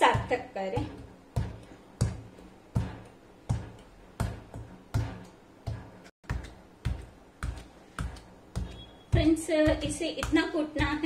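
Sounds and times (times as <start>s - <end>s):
pestle pounding dough in metal bowl: 0.0s - 11.0s.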